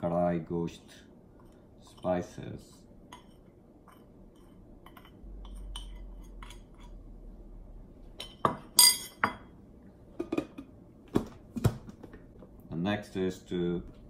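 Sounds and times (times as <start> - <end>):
spoon clinking on ceramic and glass: 8.2 - 9.5.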